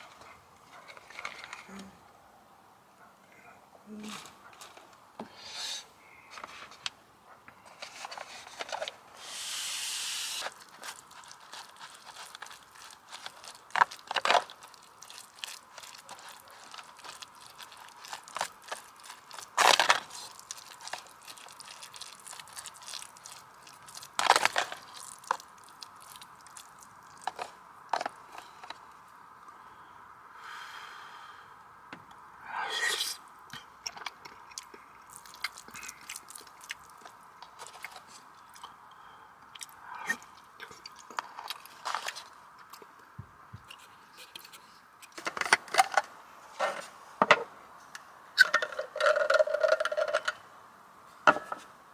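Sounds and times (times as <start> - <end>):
brief hiss: 9.2 - 10.5
packaging crinkling: 10.3 - 28.6.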